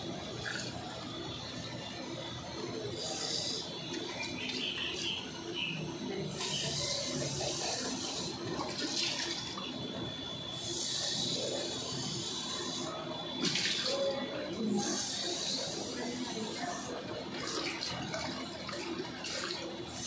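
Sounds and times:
water splashing into metal sink: 8.5s - 9.7s, 13.4s - 13.9s, 17.3s - 19.6s.

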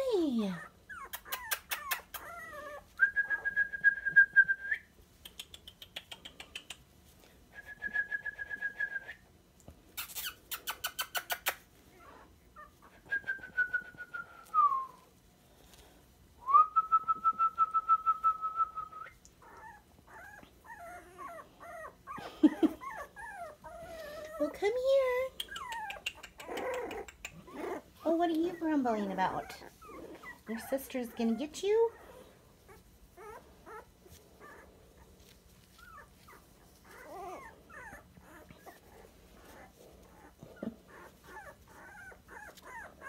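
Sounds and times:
puppies squeaking: 0.0s - 3.5s, 9.9s - 15.0s, 19.0s - 43.0s
puppies grumbling: 0.0s - 3.6s, 10.1s - 14.9s, 19.0s - 43.0s
puppies whining: 0.0s - 6.6s, 7.2s - 43.0s.

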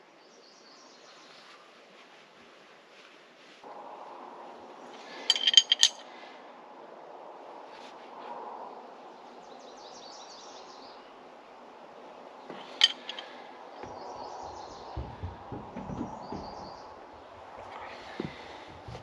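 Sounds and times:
wrench clinking on metal fitting: 5.3s - 6.0s, 12.5s - 13.3s
small birds chirping: 9.2s - 19.0s
low rumbling: 12.8s - 19.0s.

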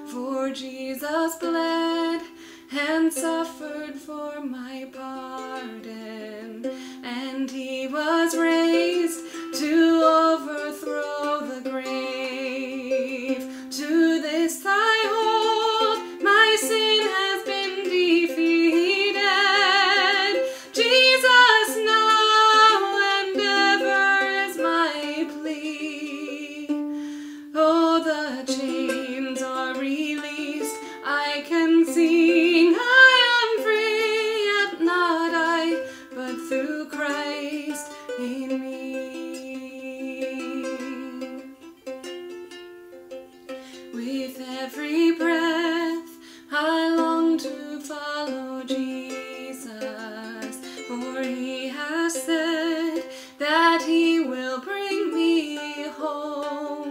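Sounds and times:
woman singing: 0.0s - 41.8s, 43.7s - 56.9s
ukulele plucked and strummed: 0.0s - 56.9s.

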